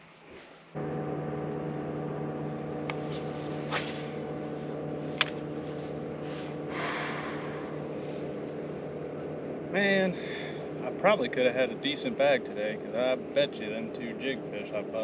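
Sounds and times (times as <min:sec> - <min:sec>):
electric motor humming: 0:00.8 - 0:15.0.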